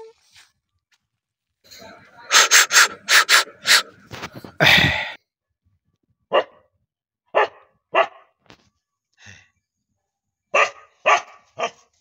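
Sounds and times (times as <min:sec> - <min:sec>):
dog barking: 0:02.2 - 0:04.1, 0:06.3 - 0:06.7, 0:07.3 - 0:08.4, 0:10.5 - 0:12.0.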